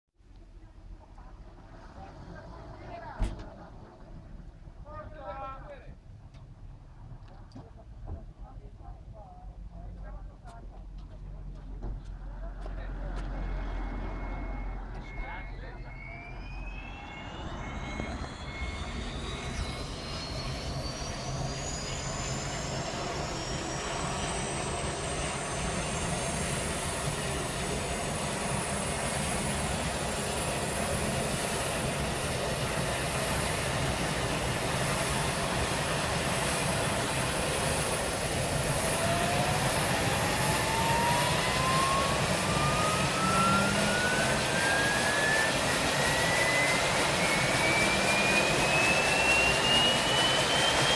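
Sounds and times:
lower climbing whine: 0.3s - 50.9s
helicopter turbine whine: 12.1s - 50.9s.

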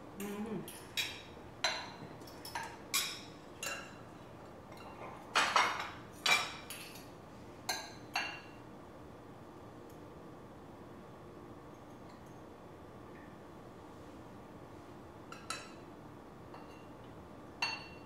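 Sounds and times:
utensils clinking on ceramic plates: 0.2s - 4.0s, 4.7s - 7.1s, 16.5s - 17.0s, 17.6s - 18.0s.

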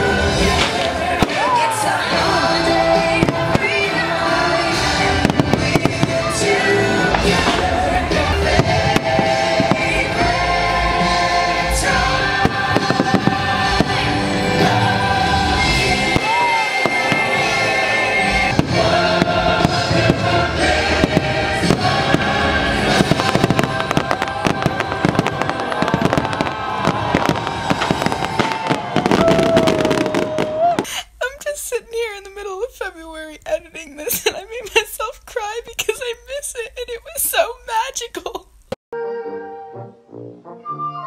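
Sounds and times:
loud show music: 0.0s - 30.2s
fireworks bursting and crackling: 0.0s - 38.8s.

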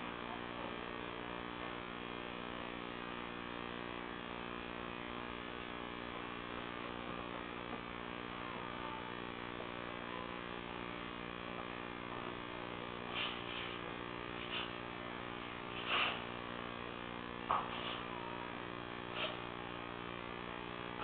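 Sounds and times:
steady electrical hum: 0.0s - 21.0s
faint clicks and scuffs: 14.4s - 14.8s.

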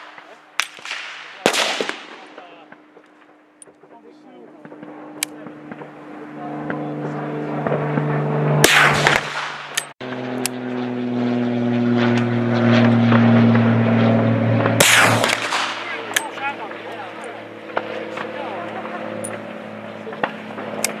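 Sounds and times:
rifle shots with echo: 0.0s - 3.8s, 8.6s - 9.9s, 14.8s - 16.4s
engine drone: 2.3s - 21.0s.

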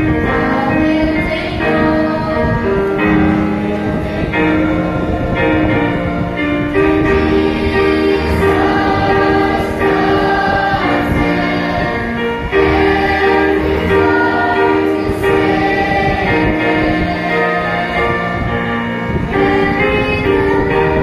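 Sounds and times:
children's choir singing: 0.0s - 21.0s.

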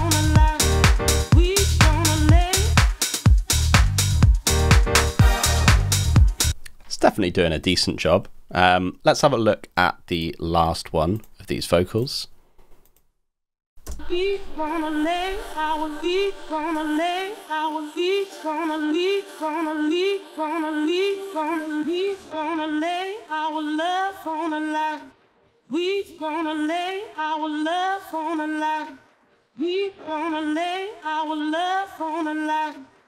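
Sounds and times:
person singing: 0.0s - 3.0s, 13.9s - 25.1s, 25.7s - 29.0s, 29.6s - 32.9s.

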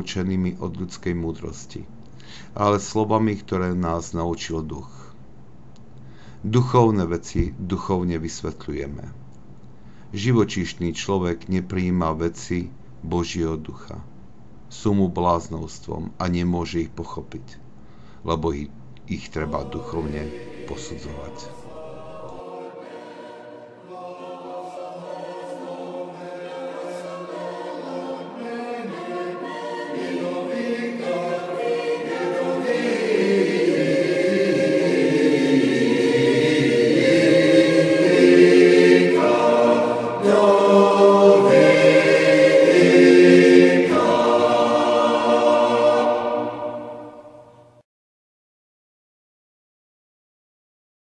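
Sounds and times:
choir singing slow chant: 19.2s - 47.8s.

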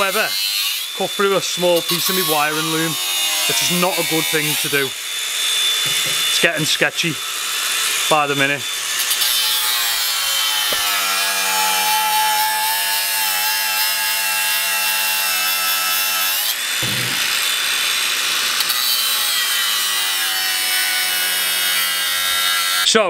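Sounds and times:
angle grinder cutting steel: 0.0s - 22.9s
low thud: 5.9s - 6.3s.

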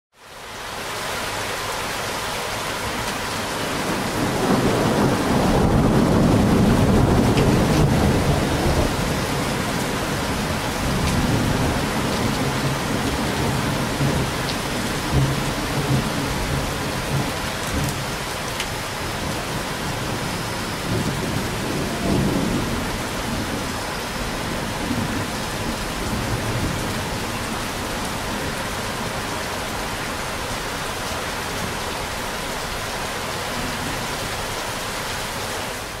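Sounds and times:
steady rain: 0.1s - 36.0s
thunder rumbling and cracking: 3.7s - 29.9s.

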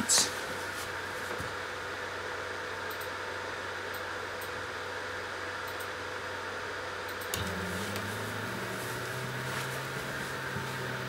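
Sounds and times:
fan hiss: 0.0s - 11.0s
click: 5.7s - 5.9s, 7.1s - 8.1s
stepper motors humming: 7.3s - 11.0s.

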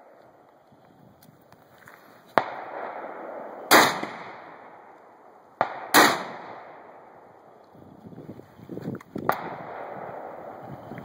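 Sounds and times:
shotgun blasts: 2.4s - 5.0s, 5.6s - 7.2s, 9.2s - 10.6s.

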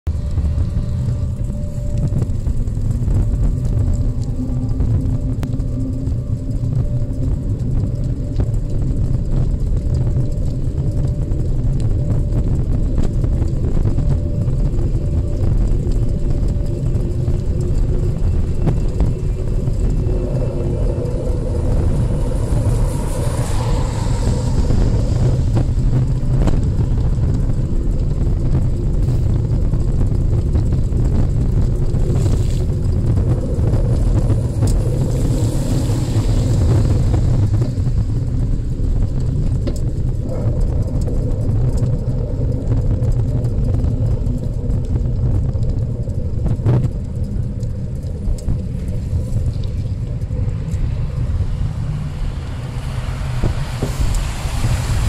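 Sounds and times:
low road rumble: 0.0s - 55.0s
car tyres hissing on wet pavement: 21.6s - 26.3s, 32.0s - 32.8s, 34.3s - 38.9s, 50.8s - 55.0s.

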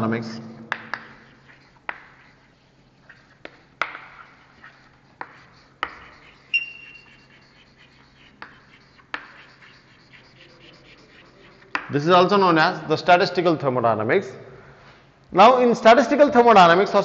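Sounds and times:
chalk scratching: 0.0s - 12.9s
chalk squeak: 0.7s - 12.4s
chalk tapping on blackboard: 0.7s - 12.4s.

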